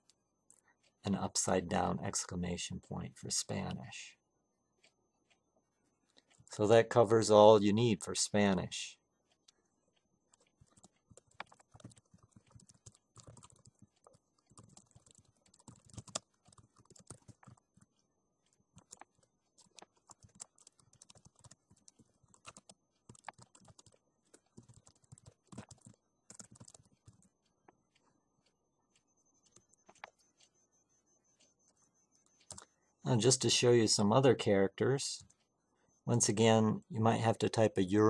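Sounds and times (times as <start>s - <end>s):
typing on computer keyboard: 9.3s - 28.1s, 28.9s - 30.6s, 31.3s - 32.8s.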